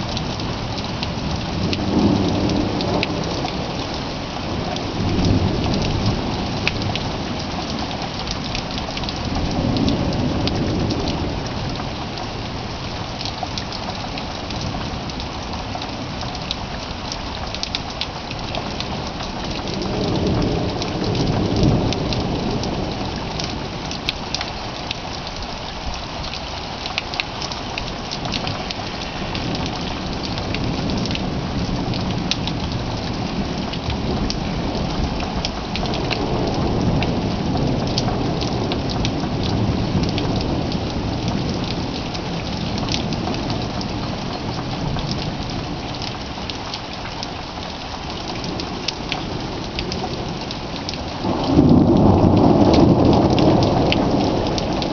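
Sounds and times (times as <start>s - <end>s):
steady rain: 0.0s - 54.9s
low rolls of thunder: 0.3s - 3.8s, 9.2s - 11.9s, 18.9s - 23.8s, 27.9s - 44.1s, 48.4s - 54.9s.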